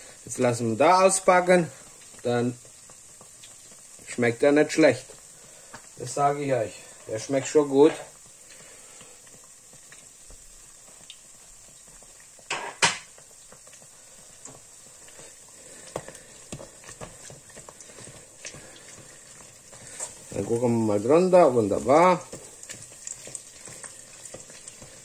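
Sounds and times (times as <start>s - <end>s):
dough sizzling in hot oil: 0.0s - 25.0s.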